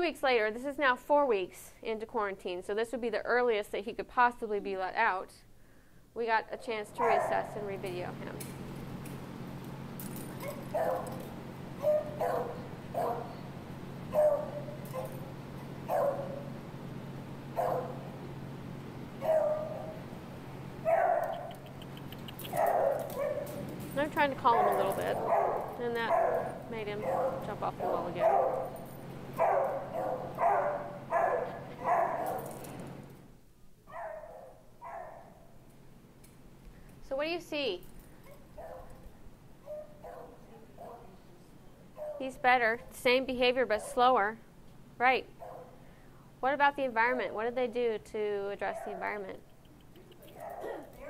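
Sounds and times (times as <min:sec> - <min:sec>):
faint steady hum: 0:00.0 - 0:51.0
dog barking: 0:07.0 - 0:07.6, 0:10.4 - 0:11.2, 0:11.8 - 0:13.4, 0:14.1 - 0:15.2, 0:15.9 - 0:16.5, 0:17.6 - 0:18.1, 0:19.2 - 0:20.0, 0:20.8 - 0:21.7, 0:22.5 - 0:23.6, 0:24.4 - 0:28.8, 0:29.4 - 0:32.4, 0:33.9 - 0:35.4, 0:38.3 - 0:39.0, 0:39.6 - 0:41.2, 0:42.0 - 0:42.3, 0:45.4 - 0:45.8, 0:48.7 - 0:49.2, 0:50.3 - 0:51.0.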